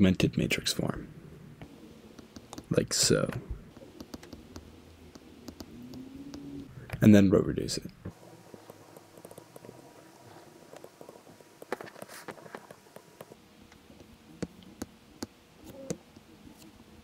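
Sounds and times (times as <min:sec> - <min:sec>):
stylus tapping on tablet: 0:04.0 - 0:06.4.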